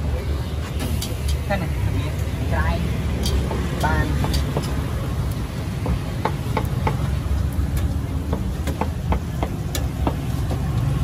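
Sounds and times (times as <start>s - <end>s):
low rumble of traffic: 0.0s - 11.0s
sharp clicks and knocks: 3.2s - 4.8s, 5.8s - 11.0s.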